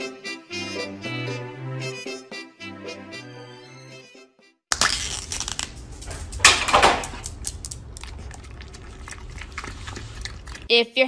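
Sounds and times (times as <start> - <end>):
plastic cup crinkling and crunching: 4.7 - 10.7.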